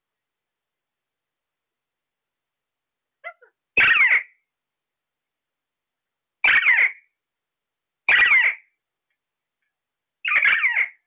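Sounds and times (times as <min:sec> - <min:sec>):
parakeet screeching: 0:03.2 - 0:04.4, 0:06.4 - 0:07.1, 0:08.1 - 0:08.7, 0:10.2 - 0:11.0.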